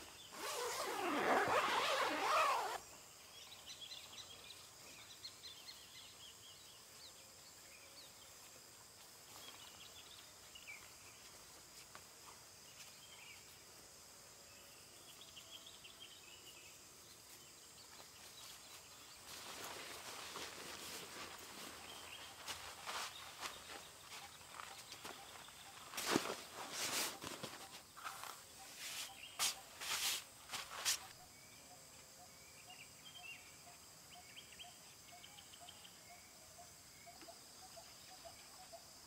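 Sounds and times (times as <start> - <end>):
faint high insect chirps: 0.0 - 39.0
tent fabric rustling: 0.3 - 2.8, 19.1 - 31.1.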